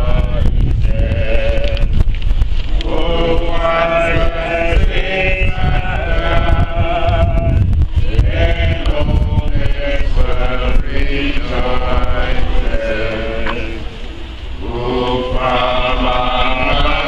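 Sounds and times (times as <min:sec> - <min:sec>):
group of people singing: 0:00.0 - 0:02.0, 0:02.8 - 0:17.0
low rumble: 0:00.0 - 0:17.0.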